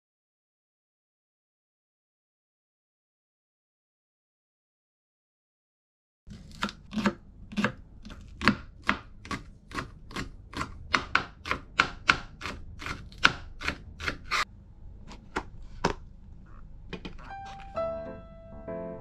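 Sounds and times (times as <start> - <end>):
knife chopping on cutting board: 6.3 - 14.4.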